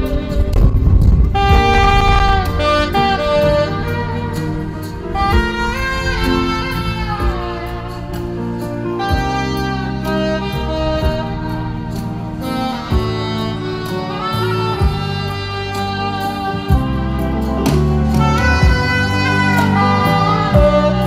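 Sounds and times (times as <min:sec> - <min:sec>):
saxophone slow melody: 0:00.0 - 0:21.0
strings and bass backing track: 0:00.0 - 0:21.0.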